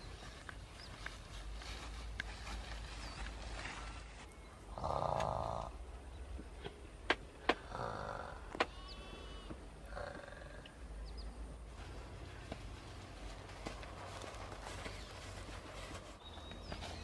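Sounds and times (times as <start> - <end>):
person snoring: 7.6 - 8.5.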